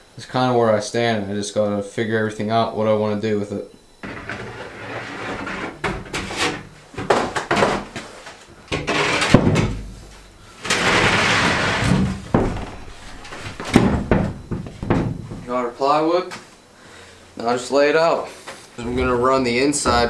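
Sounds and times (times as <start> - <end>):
plywood scraping: 4.0 - 6.6, 10.6 - 13.7, 18.8 - 20.0
plywood board knocks and thumps: 13.6 - 15.4.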